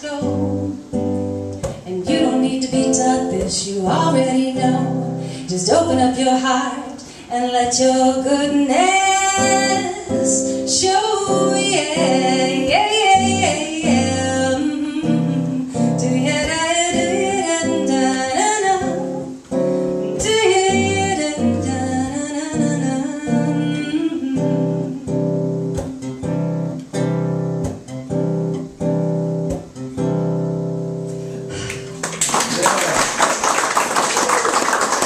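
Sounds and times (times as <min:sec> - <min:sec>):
woman singing: 0:00.0 - 0:01.0, 0:01.7 - 0:19.4, 0:20.0 - 0:25.5
strummed acoustic guitar: 0:00.0 - 0:32.0.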